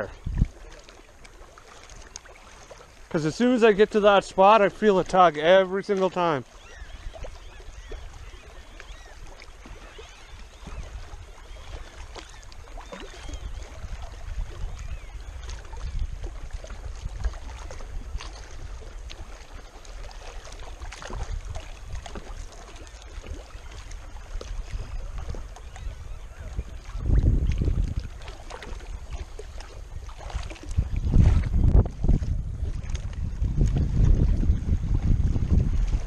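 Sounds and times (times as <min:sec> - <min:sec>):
wind on microphone: 0:00.0 - 0:00.8, 0:06.5 - 0:36.0
waves lapping against rocks: 0:00.0 - 0:36.0.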